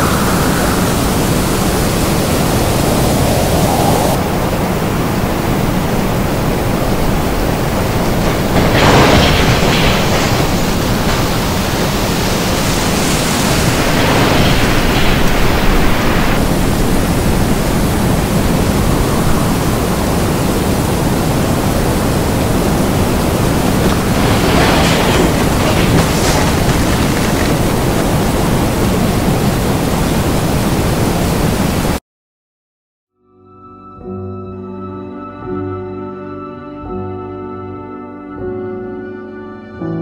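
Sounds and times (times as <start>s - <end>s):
tornado winds rushing: 0.0s - 32.0s.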